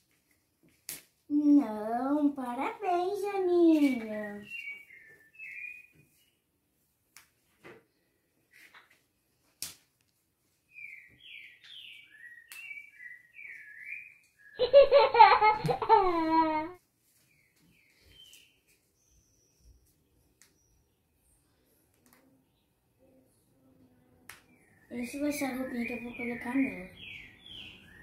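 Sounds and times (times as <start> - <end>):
child's voice: 1.3 - 4.5, 24.9 - 27.0
faint bird chirps: 4.0 - 6.5, 10.7 - 14.9, 17.2 - 28.0.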